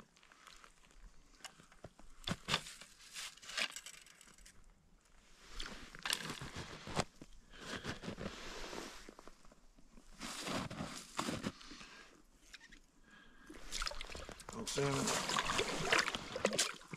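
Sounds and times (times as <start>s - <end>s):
snow crunching: 10.1s - 11.9s.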